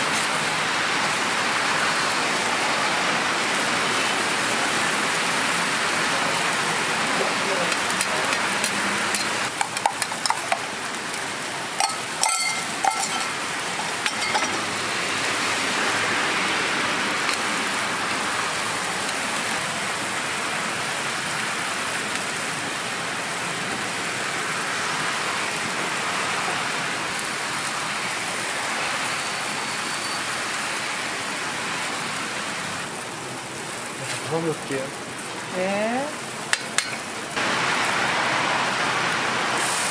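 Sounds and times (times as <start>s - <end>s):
food sizzling on griddle: 0.0s - 39.9s
metal clinks: 11.8s - 14.6s.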